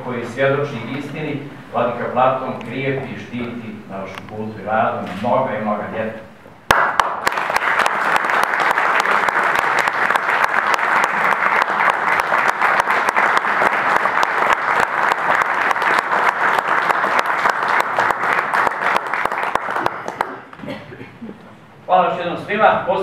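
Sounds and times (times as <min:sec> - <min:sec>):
audience applauding: 0:06.7 - 0:20.6.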